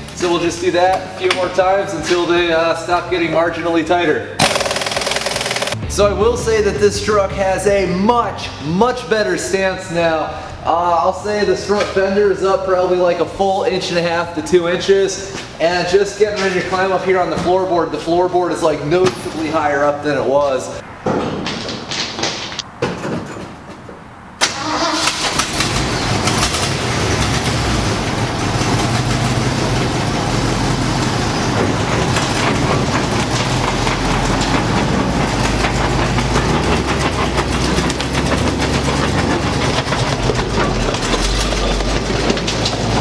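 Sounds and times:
truck engine starting and running: 0.0 - 15.1, 24.1 - 43.0.

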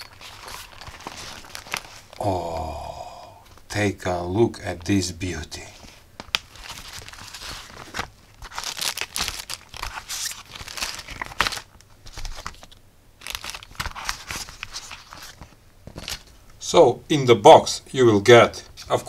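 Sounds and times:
plastic bags crinkling: 0.0 - 2.3, 5.8 - 16.4.

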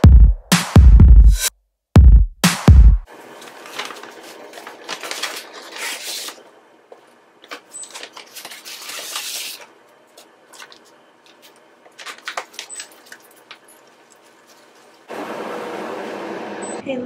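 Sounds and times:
paper bag rustling and crinkling: 3.1 - 6.5, 7.4 - 15.1.

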